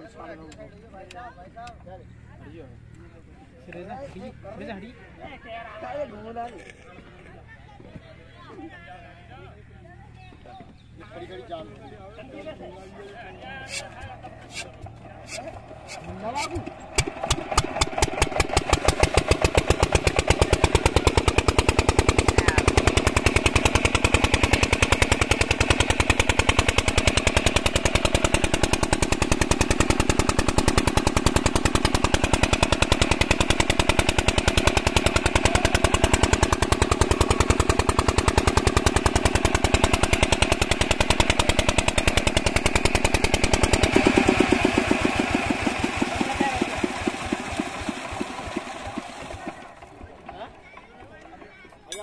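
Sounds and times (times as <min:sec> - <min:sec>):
diesel engine running: 0:13.4 - 0:50.8.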